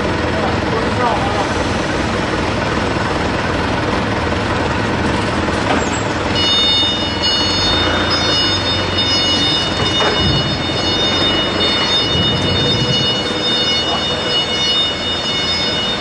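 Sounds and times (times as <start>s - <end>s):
forklift engine humming: 0.0s - 16.0s
steady high whine: 6.3s - 16.0s.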